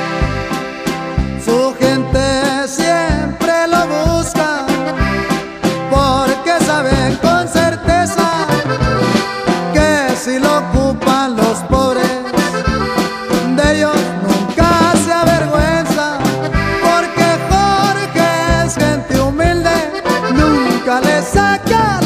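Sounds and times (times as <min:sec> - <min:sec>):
accordion melody: 0:00.0 - 0:22.0
bass line: 0:00.0 - 0:22.0
strummed rhythm: 0:00.0 - 0:22.0.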